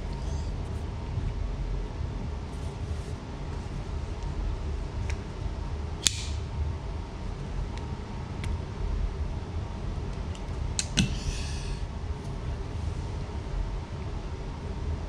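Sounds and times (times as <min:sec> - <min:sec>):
low background rumble: 0:00.0 - 0:15.0
small sharp clicks: 0:06.0 - 0:06.4.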